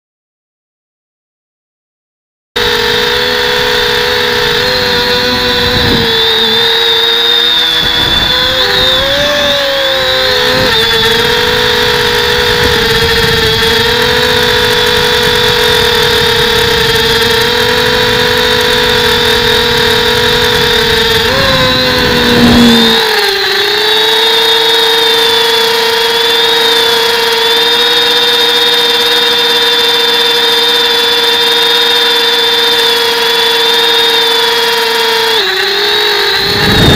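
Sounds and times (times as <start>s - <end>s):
drone motors whining: 2.6s - 36.9s
low rumbling noise: 20.5s - 23.0s.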